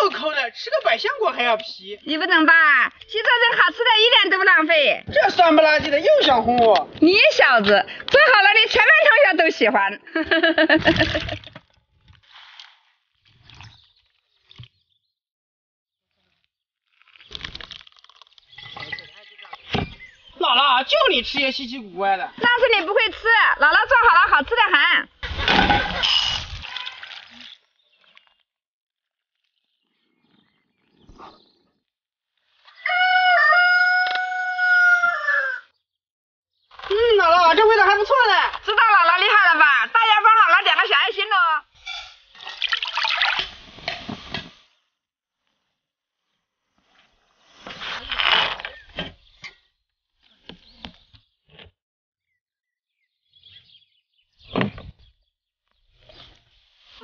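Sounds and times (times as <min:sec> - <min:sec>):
faint bird chirps: 0:29.6 - 0:31.8
rooster crowing: 0:32.7 - 0:35.7.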